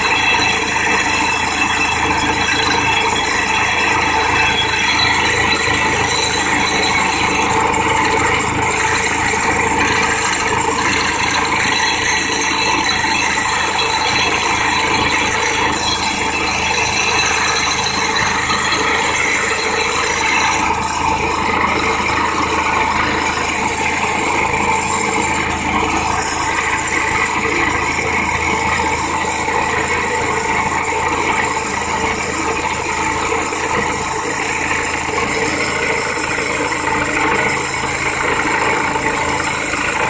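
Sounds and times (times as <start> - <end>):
vibratory pile hammer running: 0.0 - 40.0.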